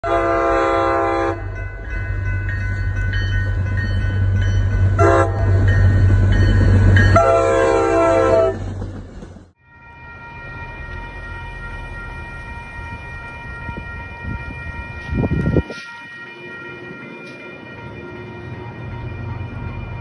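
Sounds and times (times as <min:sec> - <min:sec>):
locomotive air horn: 0:00.0 - 0:01.5, 0:05.0 - 0:05.6, 0:07.2 - 0:08.7
train rumble: 0:00.1 - 0:20.0.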